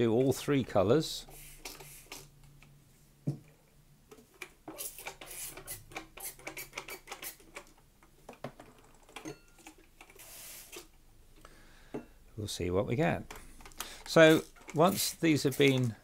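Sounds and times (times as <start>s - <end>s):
spray bottle spritzing: 1.3s - 2.3s.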